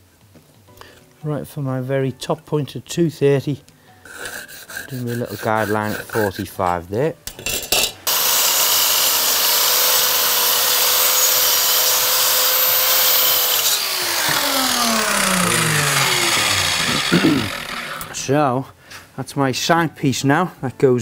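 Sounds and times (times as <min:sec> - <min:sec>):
mitre saw motor whining: 0:08.1 - 0:18.2
saw motor spinning down: 0:08.1 - 0:18.2.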